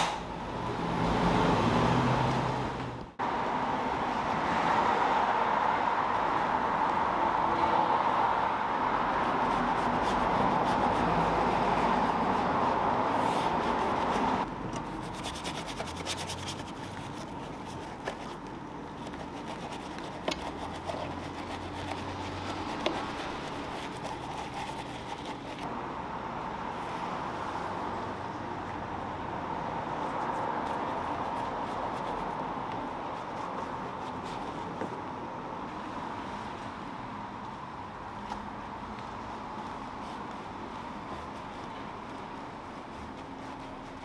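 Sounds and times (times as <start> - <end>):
brush scrubbing foamy car: 9.2 - 25.7, 40.0 - 44.0.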